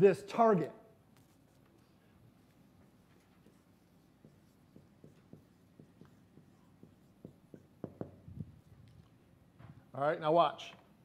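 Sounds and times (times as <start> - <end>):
marker writing on whiteboard: 1.1 - 8.8.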